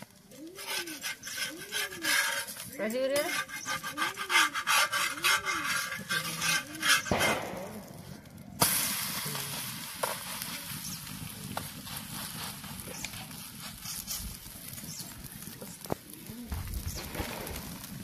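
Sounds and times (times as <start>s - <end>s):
flatbread sizzling: 0.0s - 18.0s
steel spatula scraping hot pan: 0.4s - 8.0s, 8.6s - 15.1s.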